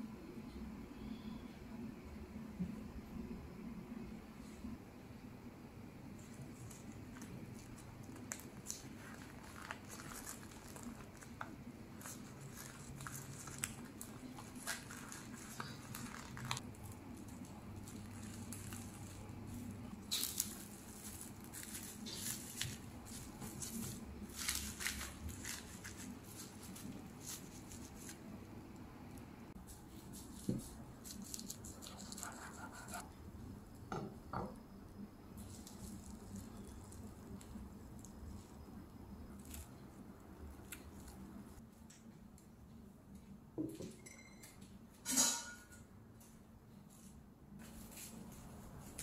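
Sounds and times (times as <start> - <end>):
nori and cling film crinkling: 6.2 - 28.3, 29.7 - 33.0, 35.4 - 41.6.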